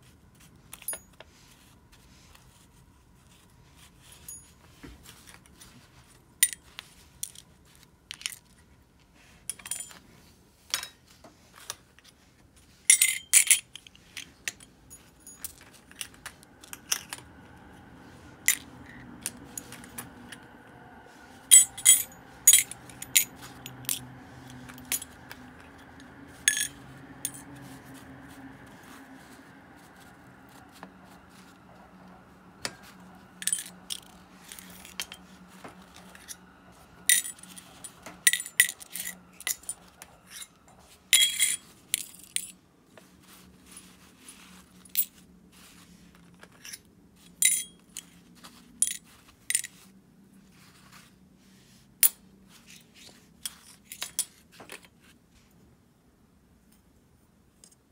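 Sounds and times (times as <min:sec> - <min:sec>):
faint steady hum: 0:00.0 - 0:57.9
metal parts clinking: 0:12.9 - 0:17.3, 0:21.5 - 0:27.5, 0:33.4 - 0:36.4, 0:37.0 - 0:42.6, 0:46.4 - 0:48.2, 0:48.8 - 0:49.8, 0:53.4 - 0:54.4.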